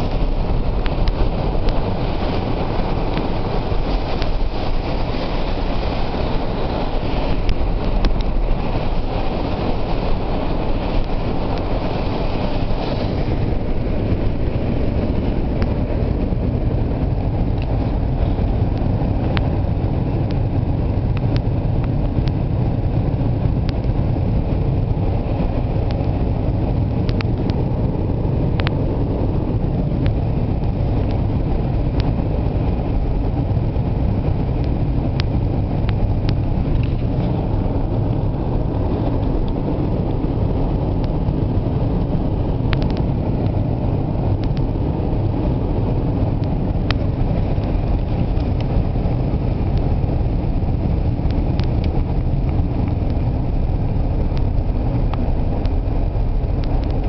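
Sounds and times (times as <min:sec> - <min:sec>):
car road noise on wet road: 0:00.0 - 0:57.0
faint ticks: 0:27.1 - 0:27.6.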